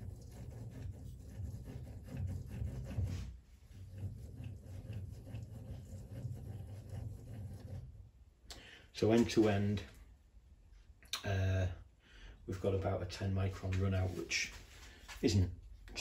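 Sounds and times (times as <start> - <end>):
lathe carriage rubbing and clicking: 0.0 - 8.0.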